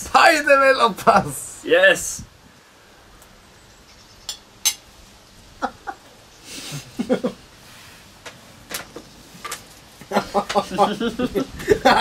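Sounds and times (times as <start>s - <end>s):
fork clinking against plate: 4.3s - 4.8s
people giggling and laughing: 5.6s - 7.4s, 10.0s - 12.0s.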